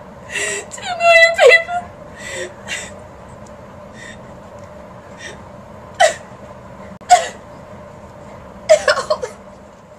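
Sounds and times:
woman sobbing: 8.7 - 9.4.

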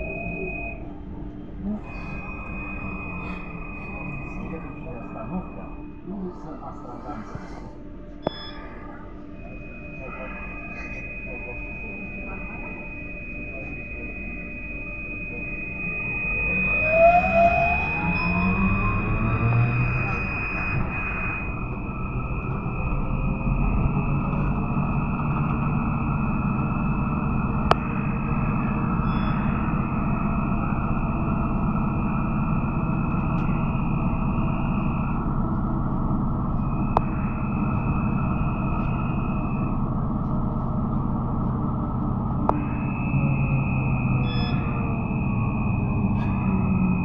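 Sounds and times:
trolleybus rumble: 0.0 - 8.4, 15.5 - 36.8
high electric whine: 0.0 - 47.0.

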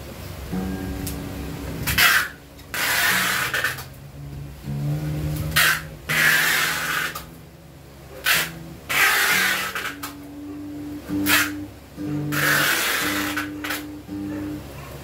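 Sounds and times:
packing tape ripping: 1.8 - 3.9, 5.5 - 7.3, 8.2 - 10.2, 11.2 - 11.5, 12.3 - 13.8.

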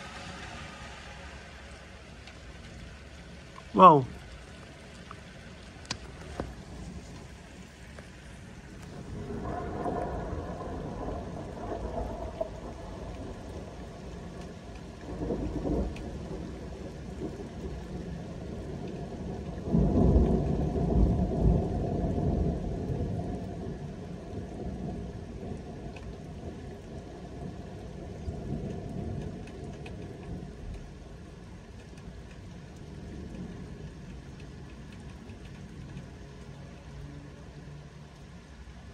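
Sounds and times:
thunder rumbling: 0.0 - 36.5
steady rain: 0.0 - 38.9.

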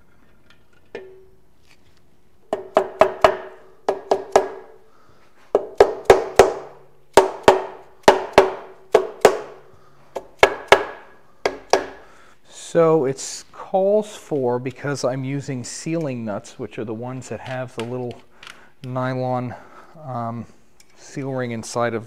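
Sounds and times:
mallet striking metal engine case: 1.0 - 1.3, 2.5 - 4.8, 10.2 - 12.0.

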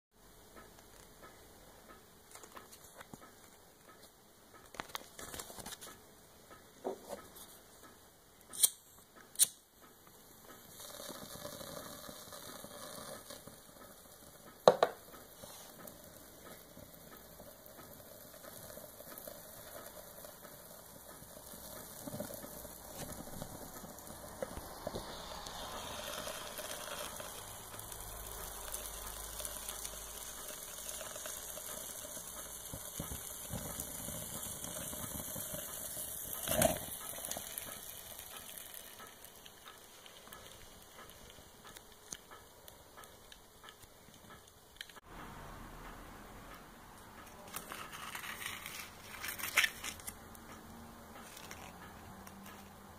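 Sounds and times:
sharp click: 8.5 - 9.6
paper burning with crackling hiss: 9.4 - 45.0, 47.2 - 52.9.

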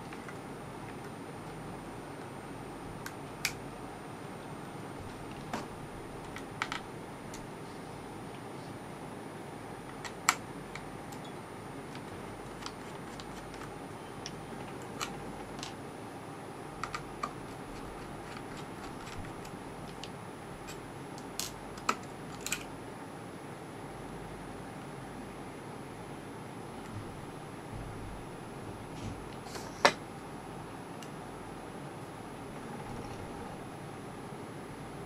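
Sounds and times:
steady hiss: 26.6 - 35.0.

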